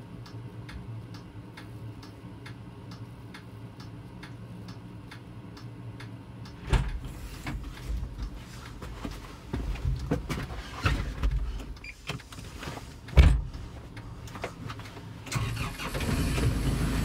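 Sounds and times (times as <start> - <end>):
tractor diesel engine idling: 15.3 - 17.0.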